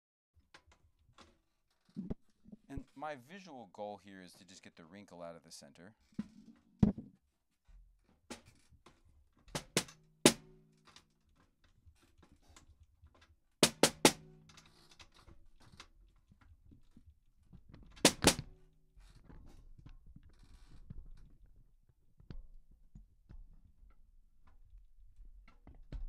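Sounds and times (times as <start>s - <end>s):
snare drum struck with stick: 9.6s - 10.5s, 13.6s - 14.2s, 18.0s - 18.4s.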